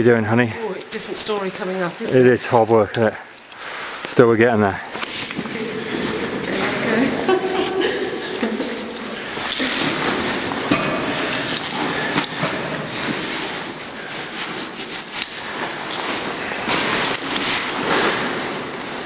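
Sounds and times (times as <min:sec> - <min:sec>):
climbing gear clicks and knocks: 0:09.3 - 0:19.0.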